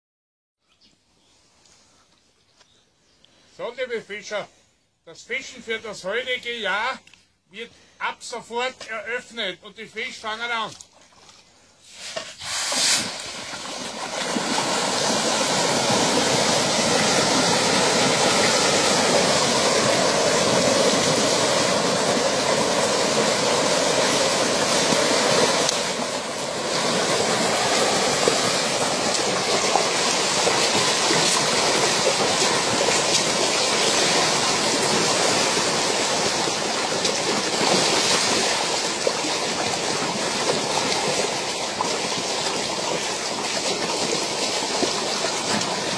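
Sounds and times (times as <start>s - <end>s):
fish splashing at water surface: 10.8s - 45.9s
fish feed landing in water: 12.1s - 45.9s.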